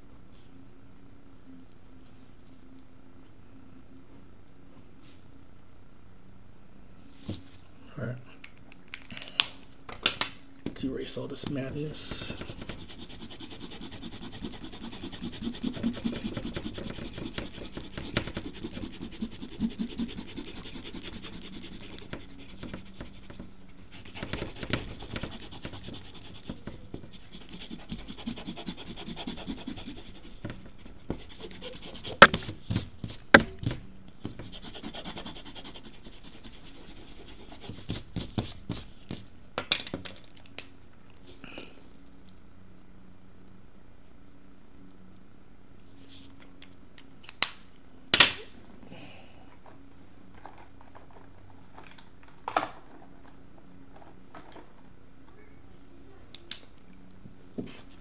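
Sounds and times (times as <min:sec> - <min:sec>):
eraser rubbing on paper: 0:12.0 - 0:39.3.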